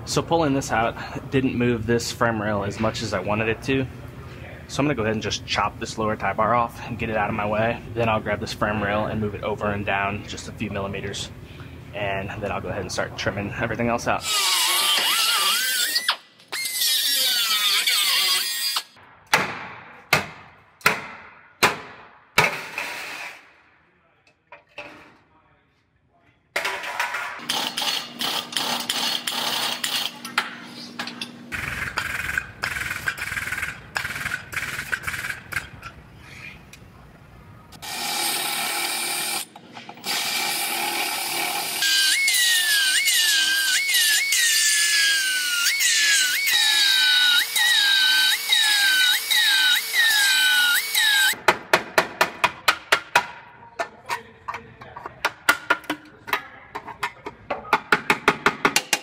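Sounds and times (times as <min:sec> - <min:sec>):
power tools cutting metal: 0:14.2 - 0:19.0, 0:27.4 - 0:30.4, 0:37.8 - 0:51.4.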